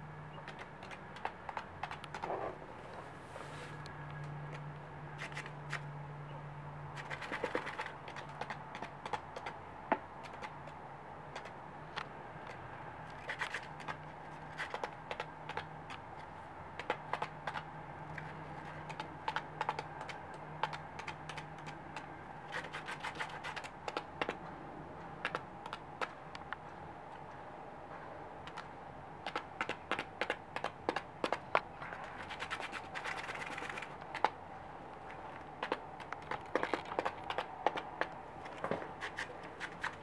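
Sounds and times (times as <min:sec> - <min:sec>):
bird scratching in sand: 0:07.0 - 0:08.9, 0:13.1 - 0:16.3, 0:22.5 - 0:23.8, 0:31.8 - 0:34.3, 0:38.5 - 0:40.0.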